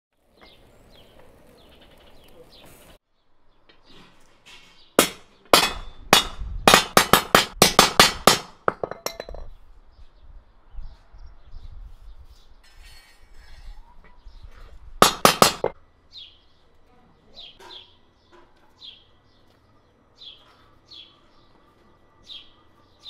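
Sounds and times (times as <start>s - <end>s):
hammer striking steel rod: 5.0s - 8.6s.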